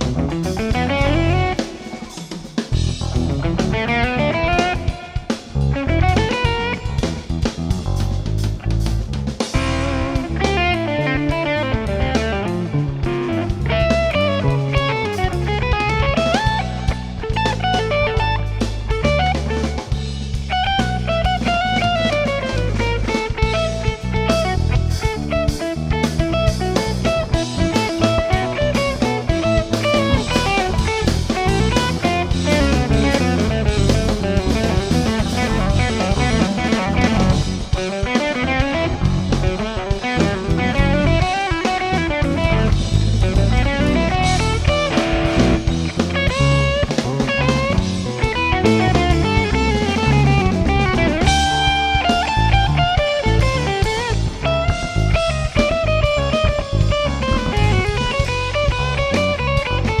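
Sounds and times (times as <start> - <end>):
drum kit playing: 0.0 - 60.0
electric bass: 0.0 - 60.0
electric guitar melody: 0.0 - 60.0.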